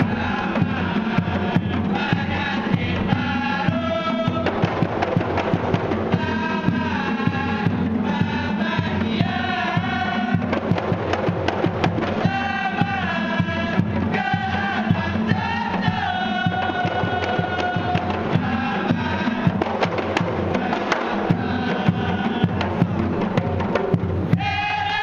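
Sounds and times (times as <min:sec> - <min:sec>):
hand drums beating: 0:00.0 - 0:25.0
men singing in unison: 0:00.0 - 0:25.0.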